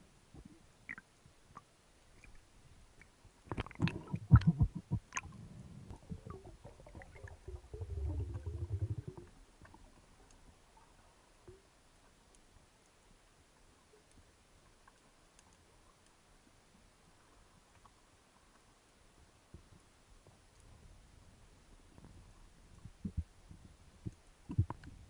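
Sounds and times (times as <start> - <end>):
knocks and clicks underwater: 3.4 - 10.1, 22.8 - 25.0
low gurgling rumble: 3.5 - 11.0.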